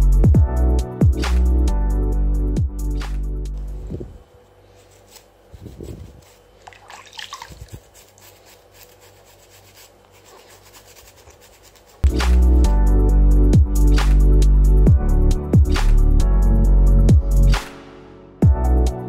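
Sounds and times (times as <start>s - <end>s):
small water splashes: 6.6s - 7.7s
water sloshing in basin: 6.6s - 7.8s
electronic music: 12.0s - 17.7s.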